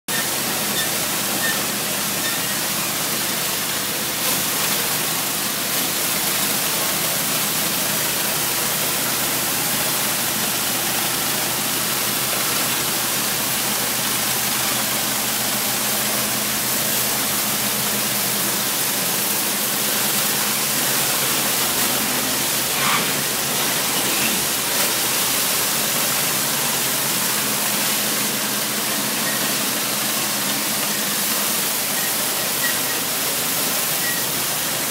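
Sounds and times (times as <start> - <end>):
surface cleaner spray hissing: 14.5 - 30.0.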